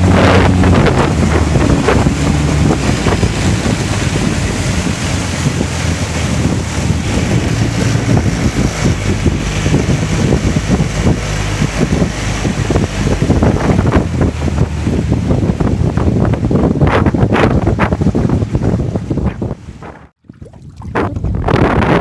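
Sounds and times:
outboard motor running: 0:00.0 - 0:21.9
waves knocking against hull: 0:00.0 - 0:22.0
wind buffeting microphone: 0:00.0 - 0:22.0.

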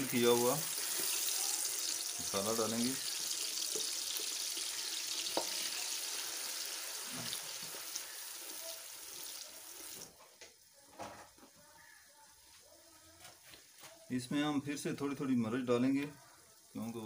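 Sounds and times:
paste sizzling in hot oil: 0:00.0 - 0:10.7.

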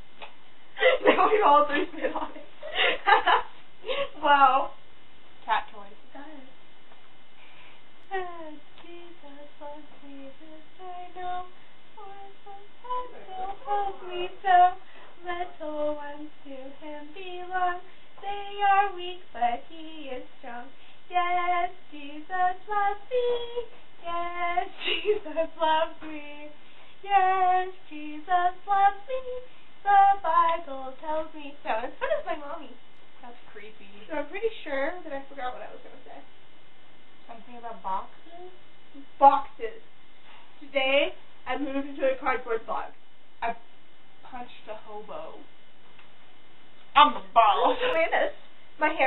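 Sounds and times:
girl singing unaccompanied: 0:08.0 - 0:32.8.

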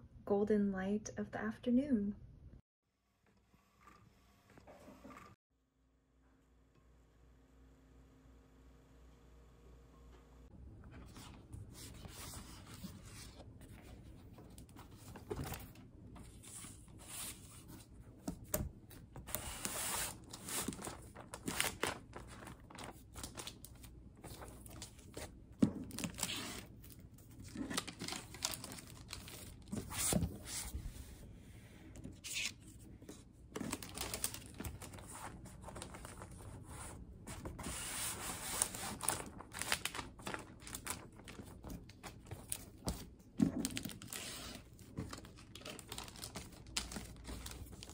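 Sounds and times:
paper rustling and crinkling: 0:10.9 - 0:31.1, 0:32.0 - 0:47.9.

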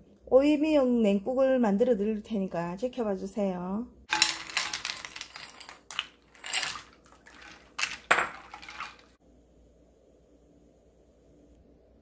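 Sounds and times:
ice clinking against glass bowl: 0:04.1 - 0:09.2
swirling water: 0:06.3 - 0:09.2.

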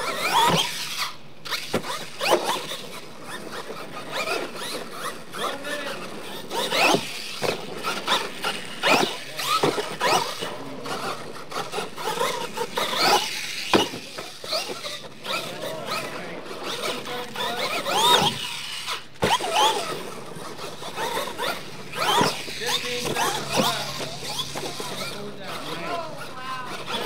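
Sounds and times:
electric motor whining: 0:00.0 - 0:27.0
toy truck landing thud: 0:12.9 - 0:14.8.

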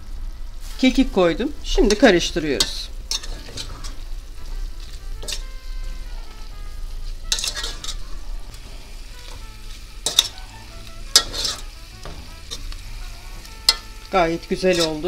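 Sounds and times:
food sizzling in a pot: 0:00.0 - 0:15.0
metal spoon scraping a pot: 0:02.6 - 0:05.7, 0:07.3 - 0:15.0.

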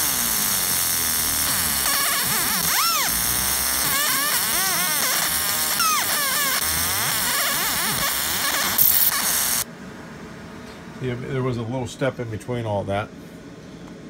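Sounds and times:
laser engraver buzzing hiss: 0:00.0 - 0:09.7.

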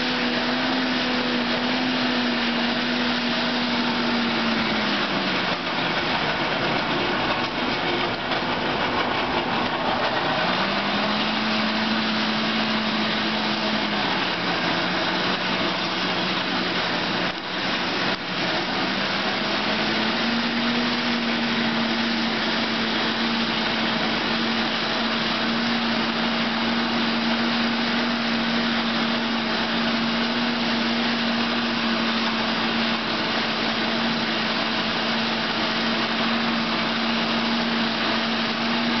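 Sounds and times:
forced air rushing through fire: 0:00.0 - 0:39.0
forge blower whine: 0:00.0 - 0:39.0.

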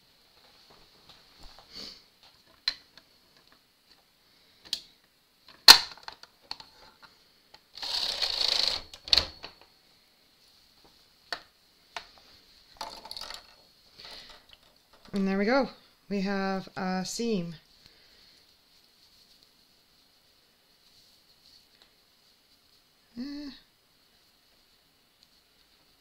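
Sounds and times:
knitting machine clicks and clacks: 0:07.8 - 0:09.3
rustling scrape: 0:17.6 - 0:23.0.

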